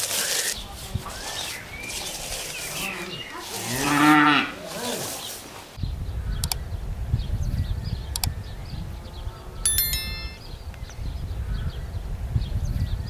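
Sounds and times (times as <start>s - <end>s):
cow mooing: 3.8s - 4.6s
low wind rumble: 5.8s - 9.6s.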